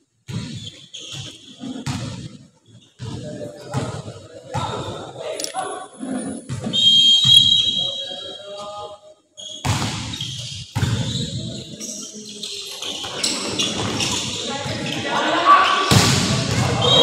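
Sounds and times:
players and spectators noise: 0:00.5 - 0:17.0
referee's whistle blast: 0:06.6 - 0:08.4, 0:16.7 - 0:17.0
volleyball hits and thuds: 0:09.6 - 0:11.0, 0:15.9 - 0:17.0.

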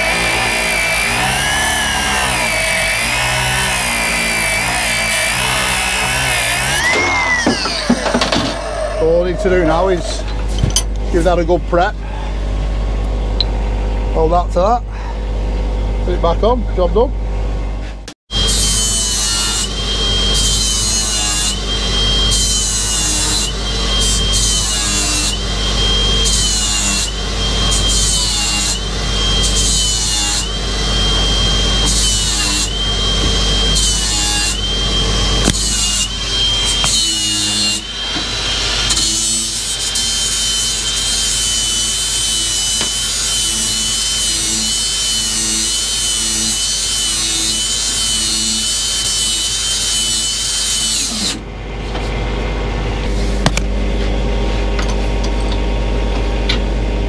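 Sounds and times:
angle grinder whining: 0:00.0 - 0:11.5, 0:18.4 - 0:51.5.

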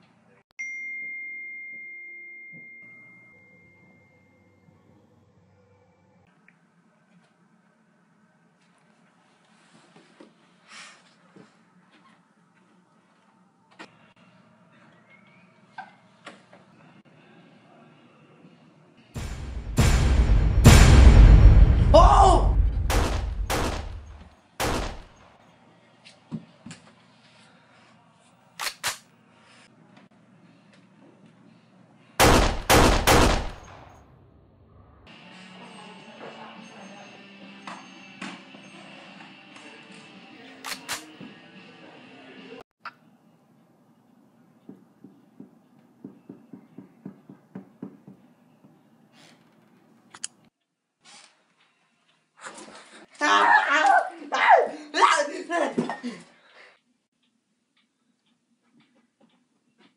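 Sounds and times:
gunshots: 0:19.2 - 0:25.1, 0:32.2 - 0:34.0.

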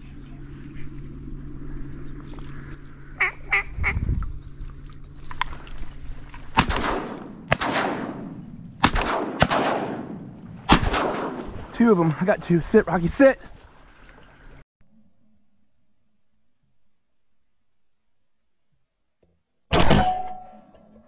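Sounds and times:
ducks quacking: 0:01.7 - 0:04.0
shotgun blasts echoing: 0:06.5 - 0:11.7.

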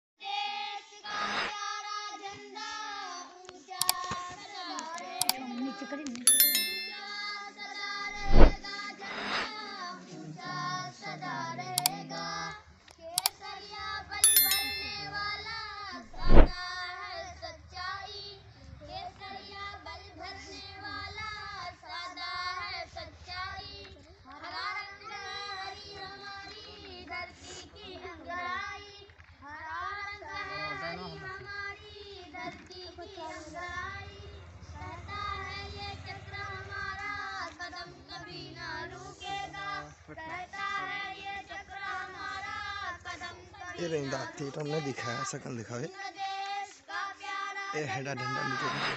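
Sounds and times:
short ringing clang: 0:06.3 - 0:07.2, 0:14.2 - 0:15.2.

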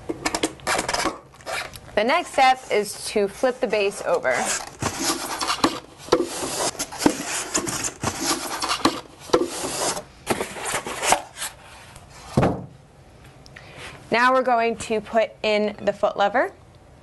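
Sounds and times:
foam packing rubbing and scraping: 0:00.7 - 0:12.3.

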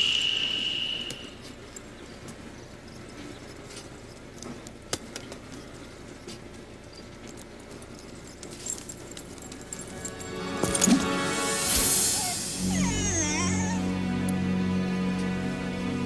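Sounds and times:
low hiss: 0:11.0 - 0:16.0.

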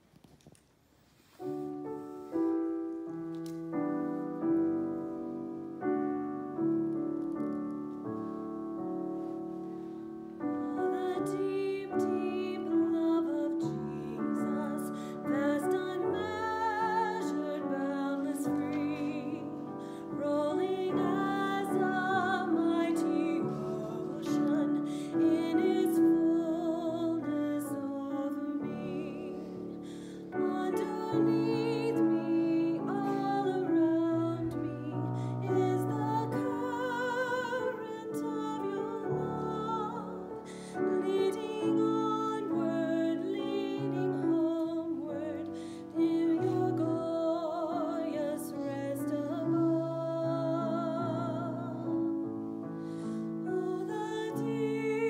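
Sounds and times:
piano chords: 0:01.4 - 0:55.0
woman singing with vibrato: 0:10.6 - 0:51.9, 0:53.4 - 0:55.0.

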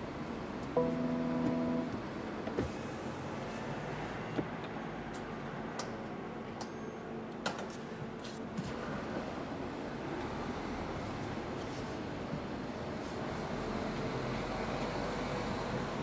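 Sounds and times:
low car cabin hum: 0:00.8 - 0:02.8.

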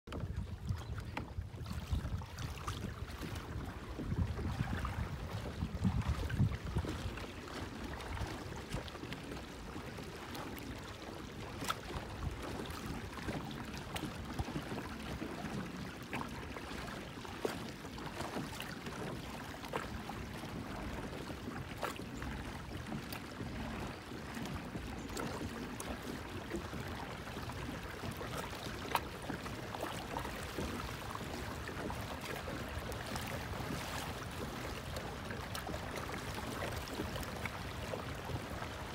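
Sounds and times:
water lapping against kayak hull: 0:00.1 - 0:38.9
small ticks and splashes: 0:10.2 - 0:38.9.

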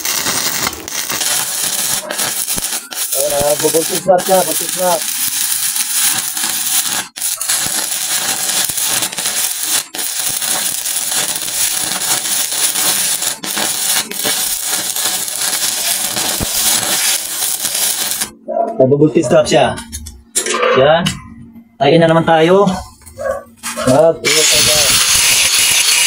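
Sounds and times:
welding arc crackling: 0:00.0 - 0:18.4, 0:23.6 - 0:26.0.

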